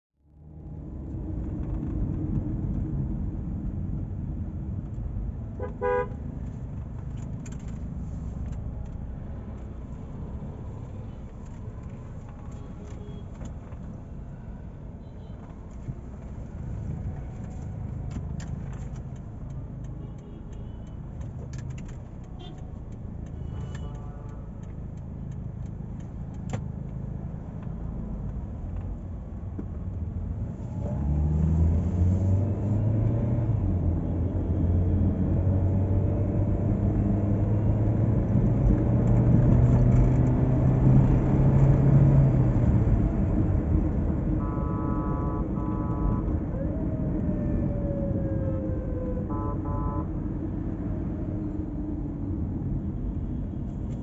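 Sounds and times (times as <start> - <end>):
road and engine rumble in car: 0.2 - 54.0
car horn toot: 5.6 - 6.2, 23.4 - 24.5, 44.4 - 46.3, 49.3 - 50.1.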